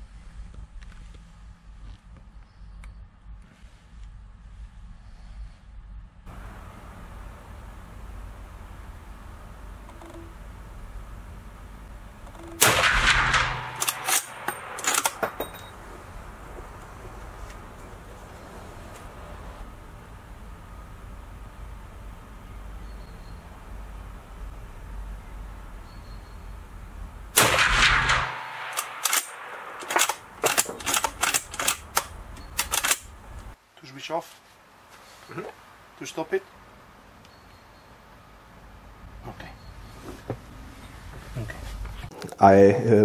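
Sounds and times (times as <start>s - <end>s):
low background hum: 0.0s - 43.0s
rifle lever clacking: 12.3s - 15.6s, 28.6s - 33.1s
rifle shot echoing: 12.4s - 16.5s, 27.4s - 32.2s.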